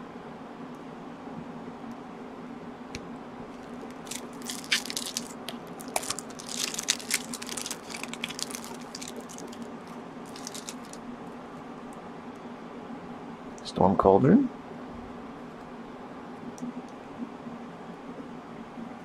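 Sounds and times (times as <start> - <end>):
foil wrapper tearing and crinkling: 3.6 - 11.0.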